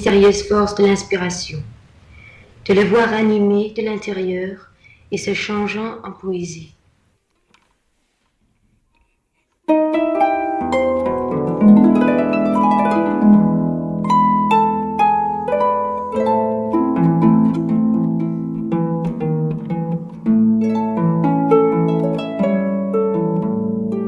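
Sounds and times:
plucked string melody: 9.6 - 24.0.

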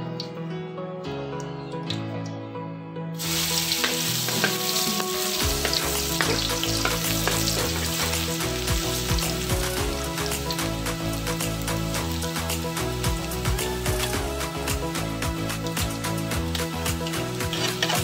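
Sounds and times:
background music: 0.0 - 18.0
garlic sizzling in hot oil: 3.2 - 18.0
metal spatula scraping pan: 17.5 - 18.0.

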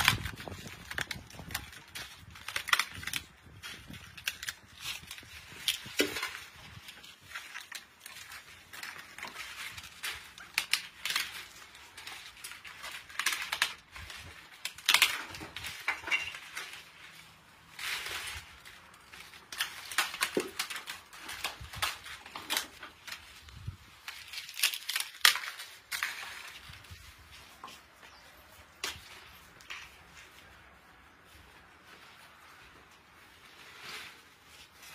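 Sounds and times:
brittle crackers crackling and crunching: 0.0 - 34.9.

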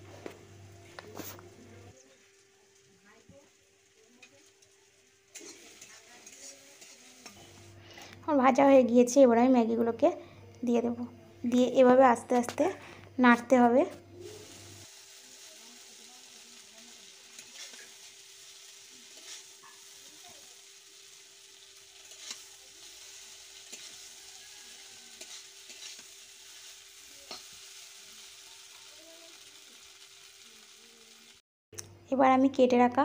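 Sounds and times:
noodles sizzling in pan: 0.0 - 7.8, 14.2 - 31.4
metal spatula scraping pan: 5.3 - 7.6, 19.1 - 19.8, 22.0 - 22.5, 23.6 - 24.2, 25.1 - 26.6.

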